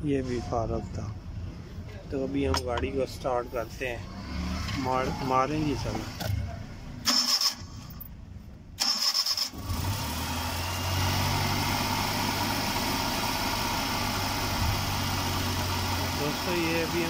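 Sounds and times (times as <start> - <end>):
car engine idling: 4.8 - 17.0
starter motor cranking: 7.0 - 7.8, 8.8 - 12.7.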